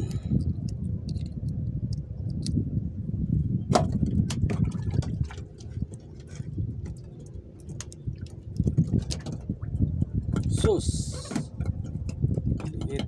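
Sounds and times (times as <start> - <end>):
wind rumbling on microphone: 0.0 - 13.0
clicks and knocks from fishing line: 3.8 - 9.6, 10.3 - 13.0.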